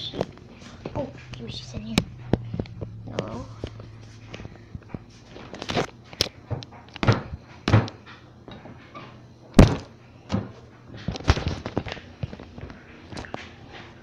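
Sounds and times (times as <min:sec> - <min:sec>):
household things knocking and thumping: 0:06.5 - 0:08.7, 0:09.6 - 0:11.9.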